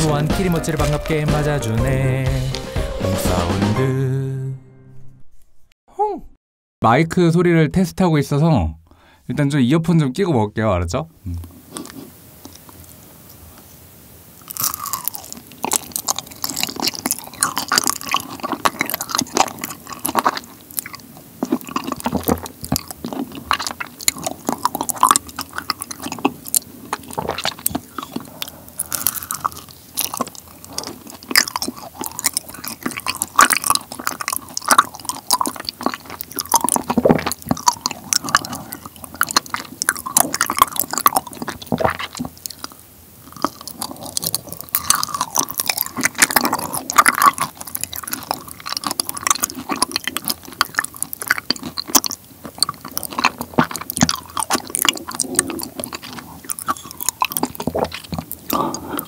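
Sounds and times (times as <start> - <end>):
sticky wet chewing: 11.4 - 13.7, 14.3 - 59.0.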